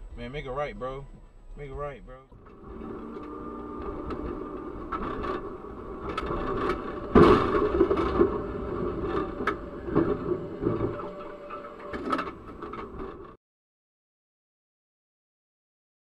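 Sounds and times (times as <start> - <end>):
metal scraping: 2.3 - 13.4
car crashing into tram: 3.8 - 12.9
tram rattling along tracks: 4.8 - 13.2.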